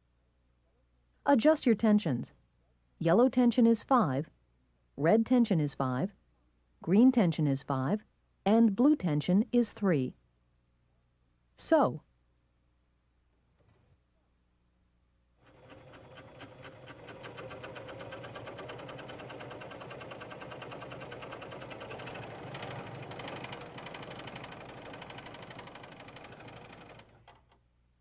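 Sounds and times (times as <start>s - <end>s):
sewing machine stitching: 15.4s - 27.6s.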